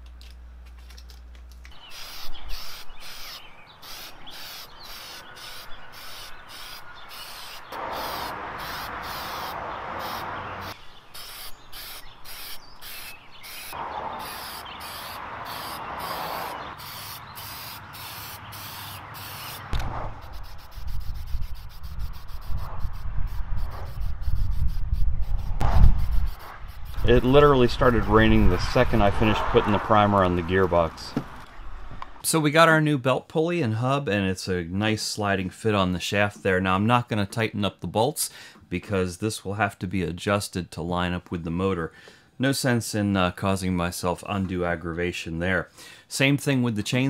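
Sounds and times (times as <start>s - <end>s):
spray can hissing: 1.8s - 27.3s
spray can ball rattling: 1.9s - 10.2s, 11.2s - 13.6s, 14.2s - 19.6s
wind on microphone: 19.8s - 30.6s.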